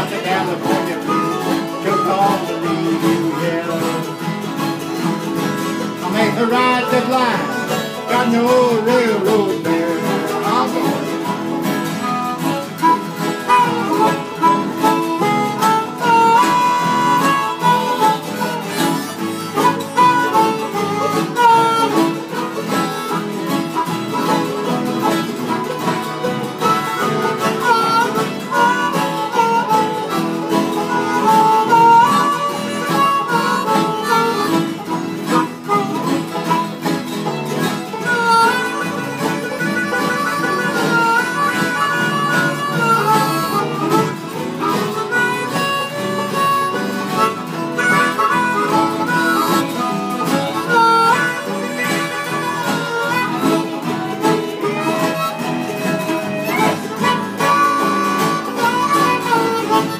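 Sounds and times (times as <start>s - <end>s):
acoustic guitars strumming: 0.0s - 59.9s
harmonica solo: 0.0s - 59.9s.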